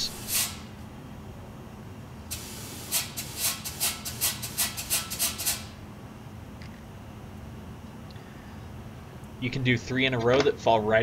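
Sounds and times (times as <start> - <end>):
machine short hisses: 0.0 - 0.8, 2.3 - 5.8.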